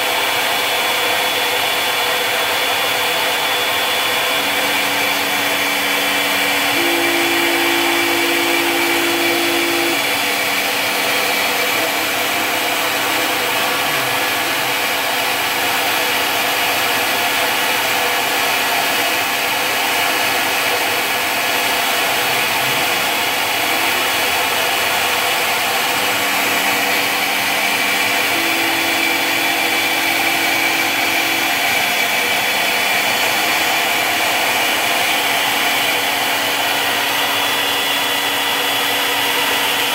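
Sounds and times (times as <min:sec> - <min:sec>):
milling machine cutting wood: 0:00.0 - 0:39.9
low hum changing pitch: 0:03.9 - 0:15.3.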